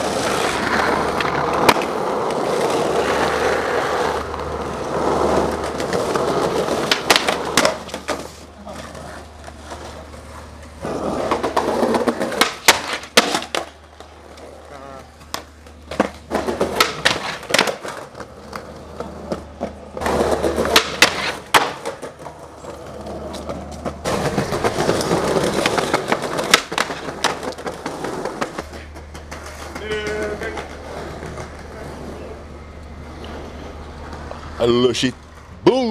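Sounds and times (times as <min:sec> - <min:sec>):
skateboard tail pops: 0:00.0 - 0:02.4, 0:05.5 - 0:08.4, 0:10.8 - 0:14.1, 0:15.2 - 0:22.4, 0:23.3 - 0:31.6
skateboard landings: 0:00.0 - 0:34.6
skateboard wheels rolling on concrete: 0:00.0 - 0:35.9.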